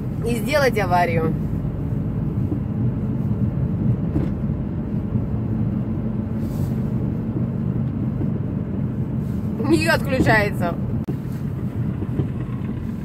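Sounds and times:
car engine and tyre noise: 0:00.0 - 0:13.0.

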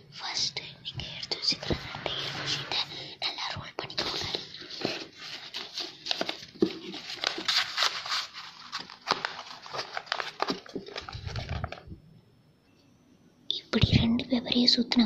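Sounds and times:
paper rustling and crackling: 0:03.8 - 0:12.0.

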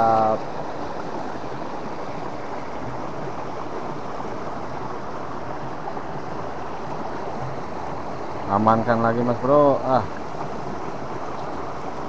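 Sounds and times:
river water rushing: 0:00.0 - 0:12.0.

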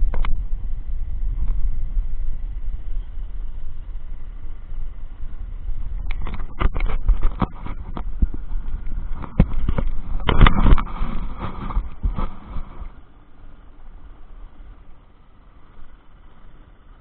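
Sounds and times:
knocks and clatters on boat: 0:05.9 - 0:13.0.

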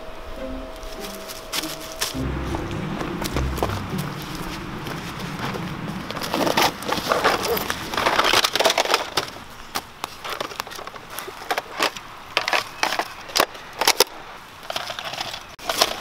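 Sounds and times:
leaf litter rustling: 0:00.8 - 0:09.4.

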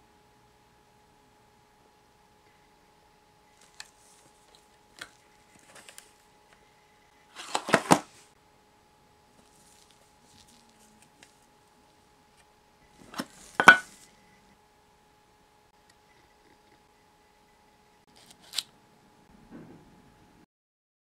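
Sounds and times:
plastic packaging crackling: 0:03.6 - 0:06.2, 0:09.3 - 0:11.5.

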